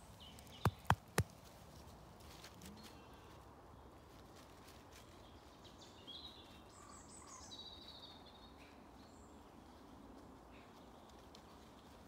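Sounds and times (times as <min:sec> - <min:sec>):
faint birdsong: 0:00.0 - 0:01.2, 0:01.8 - 0:12.0.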